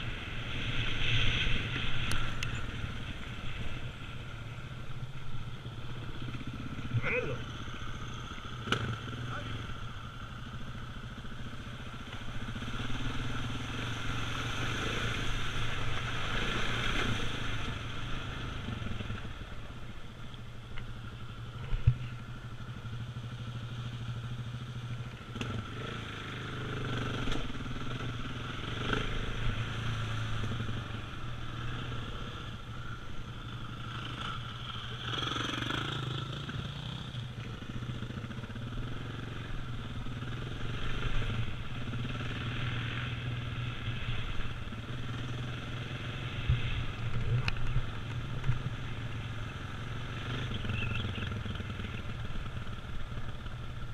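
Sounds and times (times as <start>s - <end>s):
motorcycle engine running: 0.0s - 16.4s, 17.0s - 53.9s.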